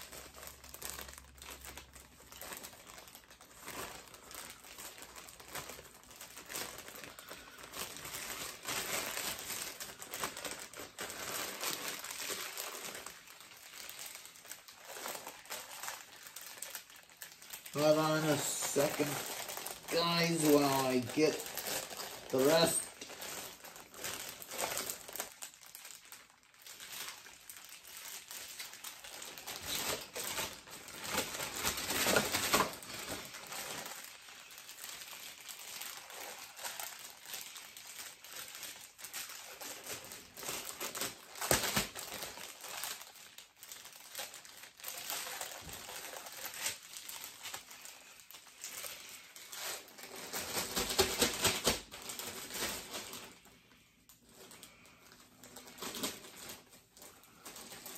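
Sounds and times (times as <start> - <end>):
plastic packaging crinkling: 0.0 - 57.9.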